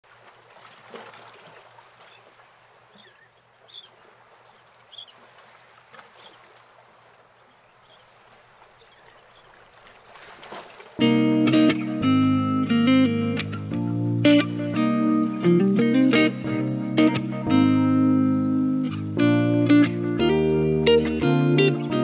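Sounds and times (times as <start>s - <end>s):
faint wash of water: 0.0s - 11.2s.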